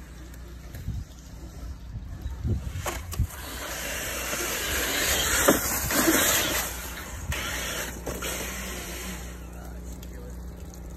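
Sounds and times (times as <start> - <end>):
toy truck driving through slush: 2.4 - 10.9.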